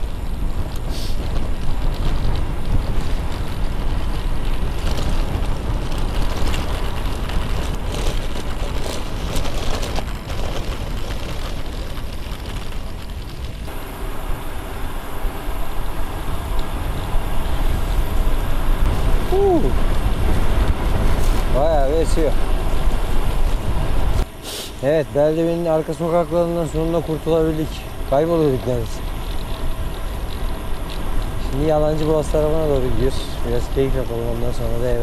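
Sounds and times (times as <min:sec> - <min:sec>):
bike tyres rolling: 0:00.0 - 0:35.0
wind rushing over microphone: 0:00.0 - 0:35.0.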